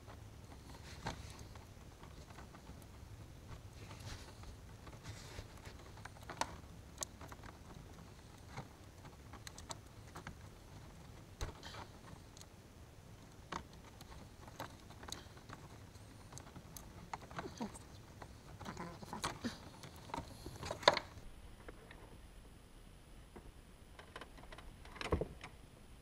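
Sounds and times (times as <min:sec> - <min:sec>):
cable rustling: 0:00.0 - 0:22.2.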